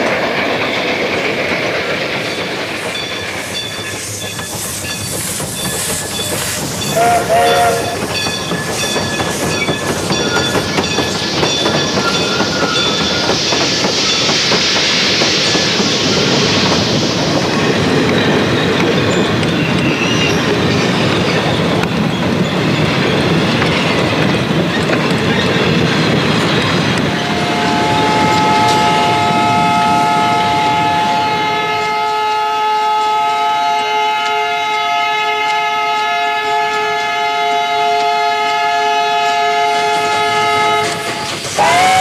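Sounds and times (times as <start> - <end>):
strong hiss: 0.0 - 22.0, 39.2 - 42.0
train rumble and wheel clatter: 0.0 - 42.0
train horn chord: 6.9 - 8.1, 27.2 - 42.0.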